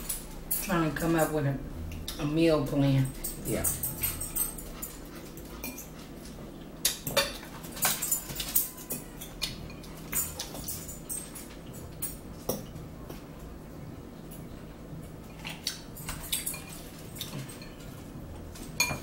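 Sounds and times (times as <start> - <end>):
forks clinking on plate: 3.1 - 6.0, 6.9 - 12.7, 15.3 - 18.0, 18.6 - 19.0
chewing and mouth sounds: 3.3 - 13.2, 14.3 - 18.7.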